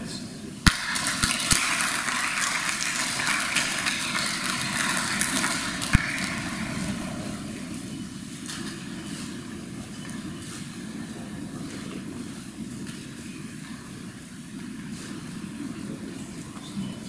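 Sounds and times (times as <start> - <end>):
sharp crack: 0.6 - 8.1
audience applauding: 0.7 - 8.0.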